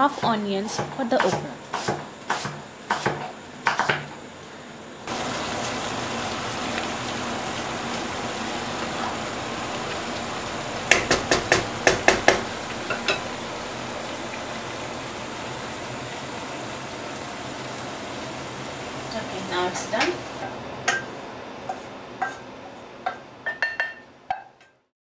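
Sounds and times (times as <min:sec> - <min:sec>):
food sizzling in a pan: 0:00.0 - 0:24.9
knife chopping on wooden board: 0:00.2 - 0:04.1, 0:10.9 - 0:12.5
sharp knocks: 0:10.9 - 0:13.2.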